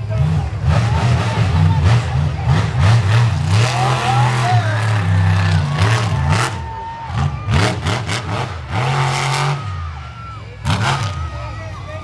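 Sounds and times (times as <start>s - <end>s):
monster truck engine revving: 0.0s - 12.0s
crowd shouting: 3.5s - 12.0s.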